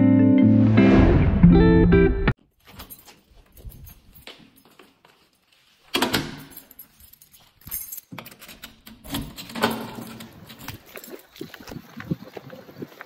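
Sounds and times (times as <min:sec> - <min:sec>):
lock and handle rattling: 0:02.6 - 0:05.1, 0:05.9 - 0:11.4
keys jangling on a keyring: 0:02.6 - 0:11.6
key working a door lock: 0:05.9 - 0:11.1.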